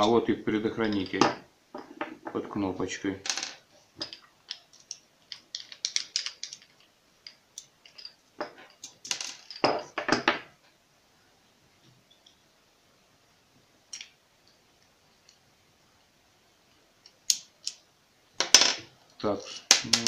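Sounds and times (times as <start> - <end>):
plastic clicks and rattles: 4.0 - 9.6.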